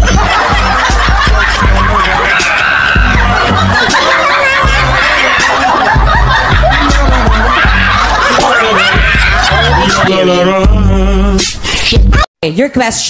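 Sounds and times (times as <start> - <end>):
people laughing: 0.0 - 11.0
music with steady bass beat: 0.0 - 12.3.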